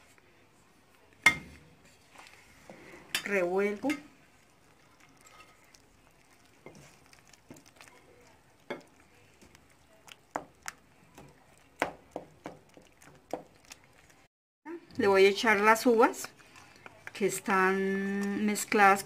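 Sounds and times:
spoon stirring thick pudding: 0:00.0 - 0:14.3, 0:14.9 - 0:19.0.

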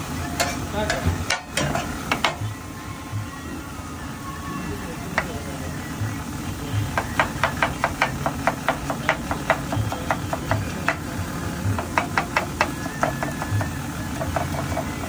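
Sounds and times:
knife chopping on wooden board: 0:07.0 - 0:11.0, 0:11.8 - 0:13.6.

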